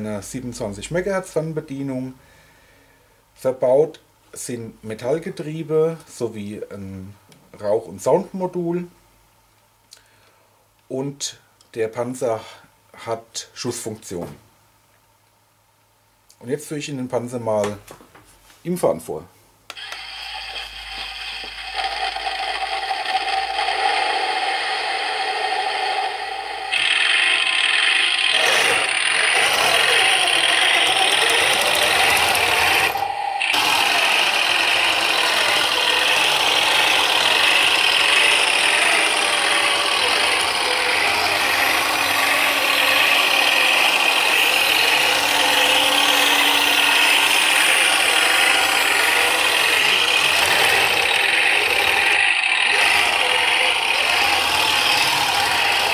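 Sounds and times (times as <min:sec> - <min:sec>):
simulated engine noise: 0:19.7 - 0:55.9
toy tank gears and tracks rattling: 0:19.7 - 0:55.9.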